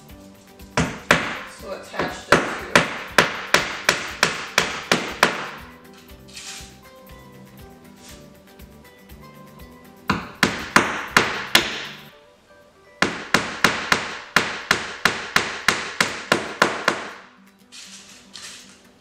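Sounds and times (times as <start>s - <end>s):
hammer driving nails into board: 0.8s - 5.7s, 10.1s - 12.1s, 13.0s - 17.3s.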